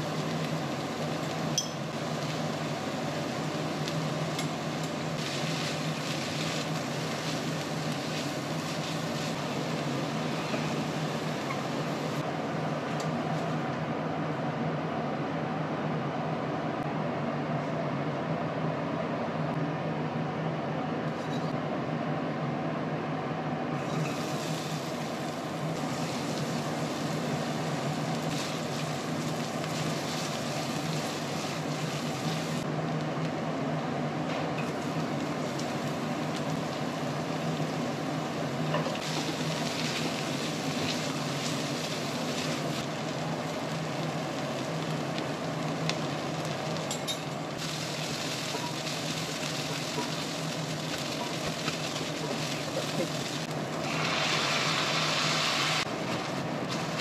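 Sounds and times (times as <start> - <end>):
butter and garlic frying: 0.0 - 12.3, 23.8 - 33.5, 34.6 - 57.0
vegetables sizzling in a wok: 0.0 - 13.7, 23.8 - 57.0.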